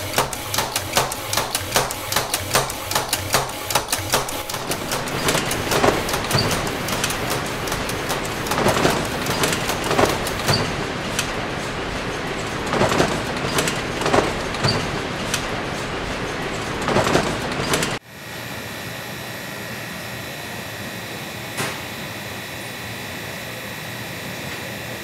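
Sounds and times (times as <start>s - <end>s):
machinery clatter with sharp clacks: 0.0s - 18.0s
steady machine hum: 0.0s - 25.0s.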